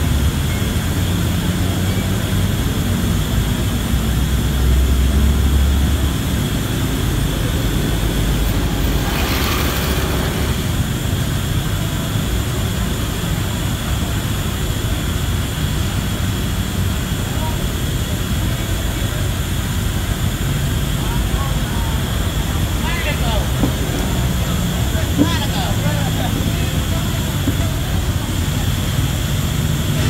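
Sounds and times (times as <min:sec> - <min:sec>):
diesel bus engine idling: 0:00.0 - 0:30.0
motorcycle passing: 0:07.1 - 0:11.1.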